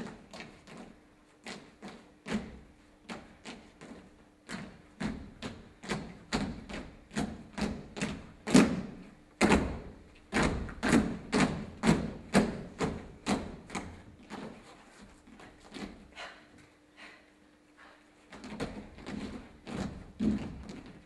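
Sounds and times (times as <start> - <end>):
faint hum: 0.0 - 21.0
feet stamping on stage floor: 18.2 - 21.0.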